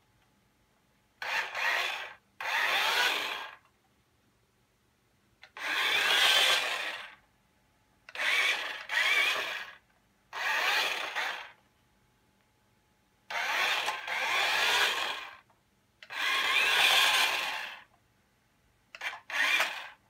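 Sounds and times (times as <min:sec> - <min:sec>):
toy electric motor whirring: 0:01.2 - 0:03.6, 0:05.4 - 0:07.2, 0:08.1 - 0:11.6, 0:13.3 - 0:17.9, 0:19.0 - 0:20.0.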